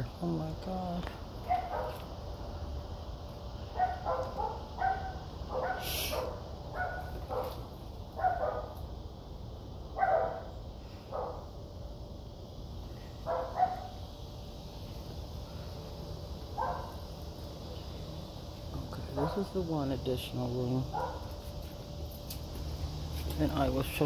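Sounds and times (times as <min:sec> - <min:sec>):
dog barking: 0:01.5 - 0:02.0, 0:03.8 - 0:07.6, 0:08.2 - 0:08.8, 0:10.0 - 0:10.5, 0:11.1 - 0:11.4, 0:13.2 - 0:13.9, 0:16.6 - 0:17.0, 0:20.9 - 0:21.3.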